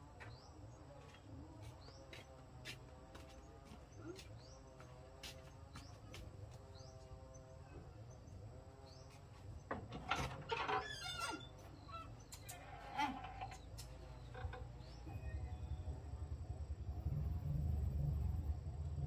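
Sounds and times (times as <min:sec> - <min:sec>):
small birds chirping: 0:00.0 - 0:10.0, 0:11.0 - 0:16.2.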